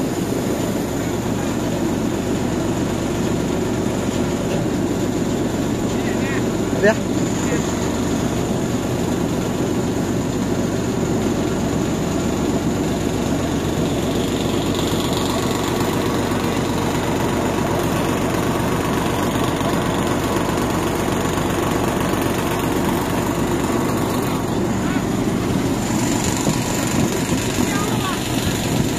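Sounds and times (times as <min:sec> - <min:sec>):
combine harvester running: 0:00.0 - 0:28.9.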